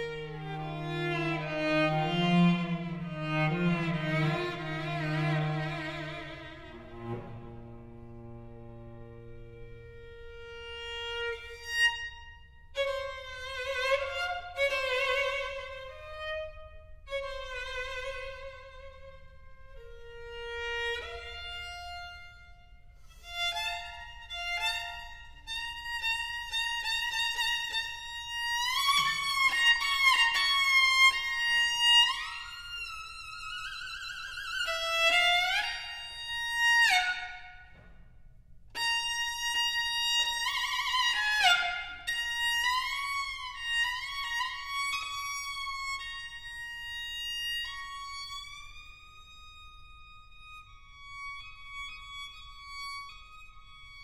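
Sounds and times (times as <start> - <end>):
violin slow melody: 0.0 - 37.8.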